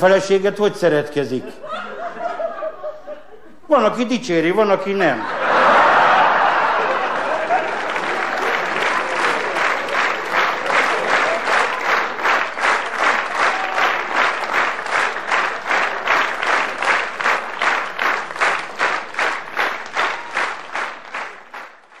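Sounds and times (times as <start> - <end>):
audience clapping in unison: 5.5 - 22.0.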